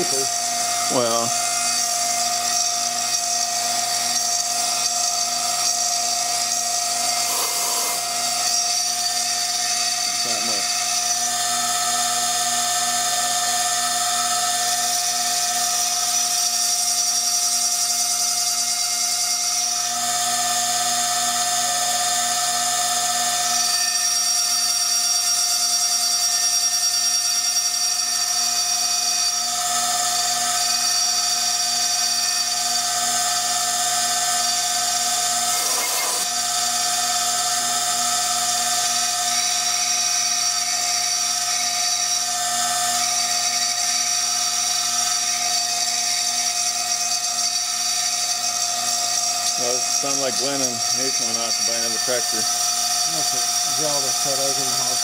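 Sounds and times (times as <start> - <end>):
milling spindle whining: 0.0 - 25.0, 26.2 - 55.0
scratchy burst: 7.2 - 8.1, 35.4 - 36.3.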